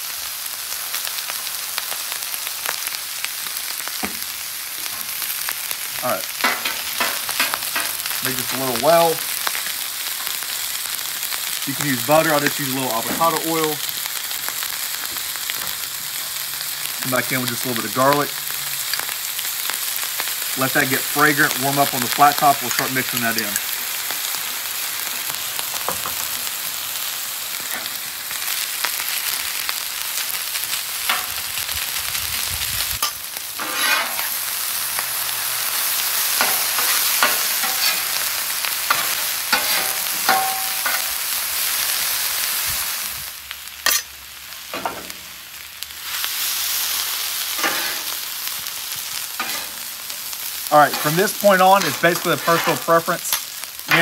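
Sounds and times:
food sizzling on a griddle: 0.0s - 54.0s.

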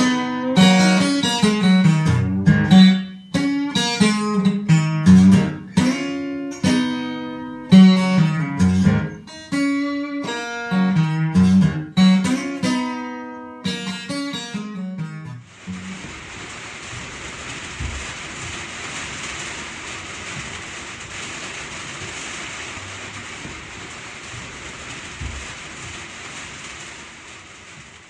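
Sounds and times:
steady rushing noise: 15.4s - 28.0s
low thuds: 15.5s - 27.1s.

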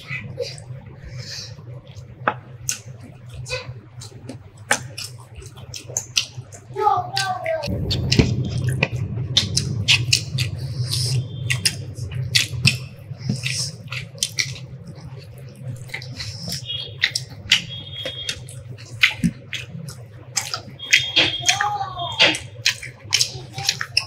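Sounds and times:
steady low hum: 0.0s - 24.0s
wet eating smacks and clicks: 1.8s - 24.0s.

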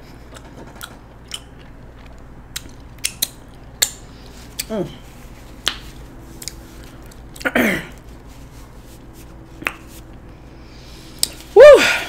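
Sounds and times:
lip smacks while eating: 0.3s - 4.7s, 5.6s - 8.1s, 11.2s - 11.5s.

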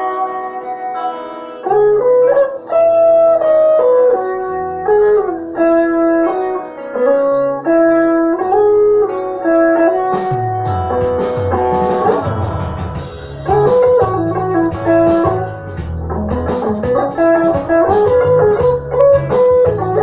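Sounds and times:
backing track with bass line: 0.0s - 20.0s
electric guitar lead: 0.0s - 20.0s.

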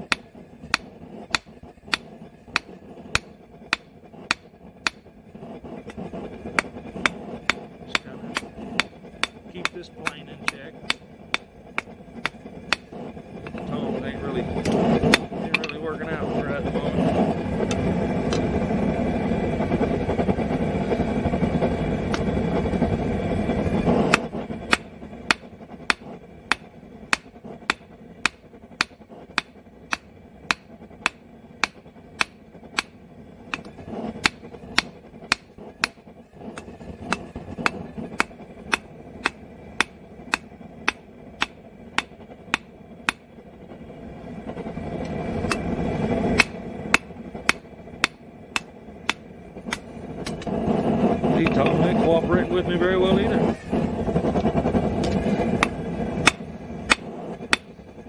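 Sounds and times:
hammer striking steel on anvil: 0.0s - 5.1s, 6.6s - 13.7s, 14.6s - 16.0s, 24.1s - 36.0s, 36.6s - 43.2s, 46.4s - 50.5s, 55.0s - 57.7s
loud steady rushing noise: 0.0s - 58.0s.

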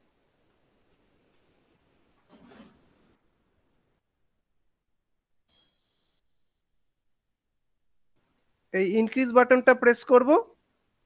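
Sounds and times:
faint high-pitched ding: 5.5s - 6.6s.

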